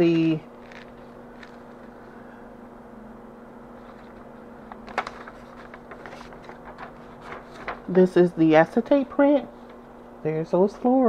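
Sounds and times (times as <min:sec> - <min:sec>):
steady low hum: 0:00.0 - 0:11.0
paper and acetate rustling: 0:00.6 - 0:02.0, 0:03.8 - 0:08.1.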